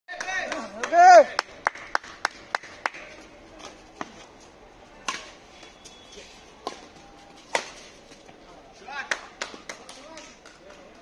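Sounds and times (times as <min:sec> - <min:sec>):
racket hitting shuttlecock: 0:05.0 - 0:05.7, 0:06.6 - 0:08.2.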